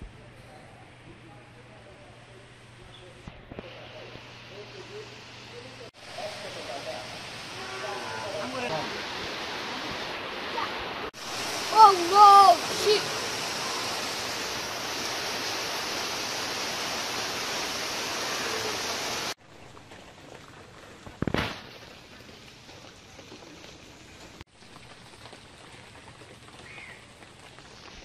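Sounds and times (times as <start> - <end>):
rain hissing: 1.7 - 28.0
rain pattering on pond: 5.9 - 28.0.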